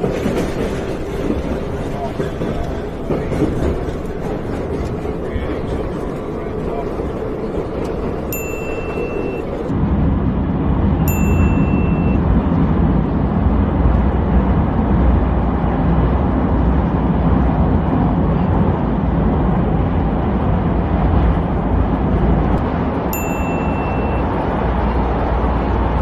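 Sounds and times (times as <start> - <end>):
metro train rumble: 0.0 - 26.0
short high beep: 11.1 - 12.2, 23.2 - 24.3.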